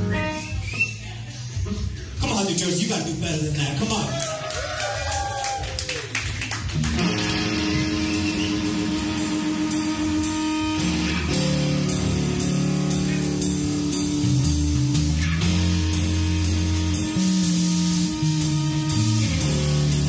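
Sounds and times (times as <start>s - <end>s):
electric guitar chords: 0.0s - 0.6s, 6.6s - 20.0s
bass guitar: 0.0s - 20.0s
drum kit playing: 0.0s - 20.0s.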